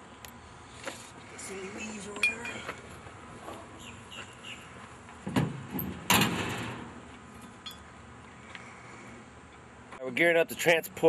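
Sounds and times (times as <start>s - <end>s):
tailgate clank: 5.3s - 7.0s
tailgate slamming metal bang: 5.3s - 7.0s.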